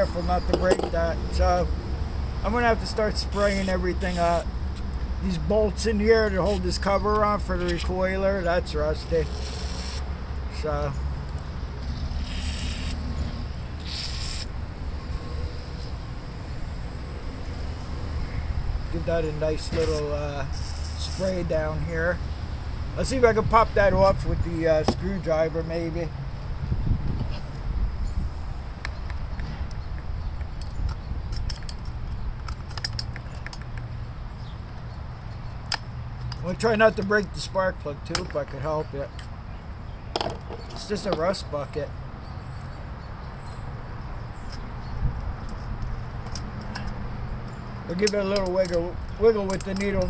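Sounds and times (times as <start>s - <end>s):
aerosol spray hisses: 12.2s - 13.0s.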